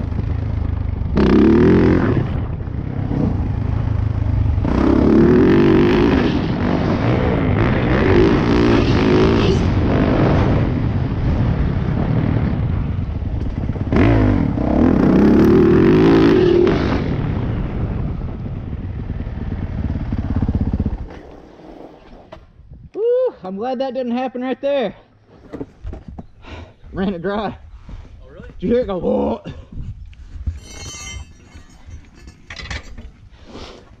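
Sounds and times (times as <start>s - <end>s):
motorcycle engine revving: 0.0s - 22.0s.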